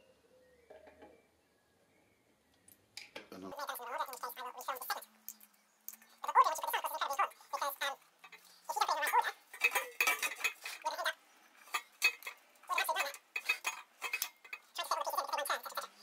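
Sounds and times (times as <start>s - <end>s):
metal fittings clinking and scraping: 6.0s - 16.0s.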